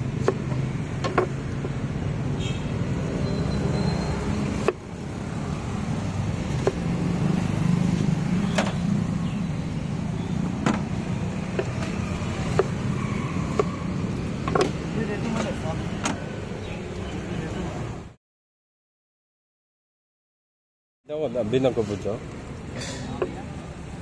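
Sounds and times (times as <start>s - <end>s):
road traffic rumble: 0.0s - 18.2s, 21.1s - 24.0s
sharp knocks: 0.2s - 1.8s, 11.5s - 12.8s, 14.4s - 14.8s.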